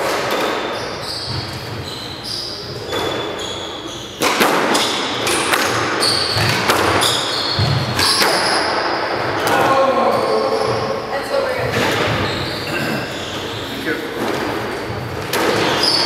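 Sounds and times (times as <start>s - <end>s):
sneaker squeaks on hardwood: 0.0s - 9.0s, 10.0s - 16.0s
squash ball cracks: 4.2s - 7.1s, 8.0s - 8.8s.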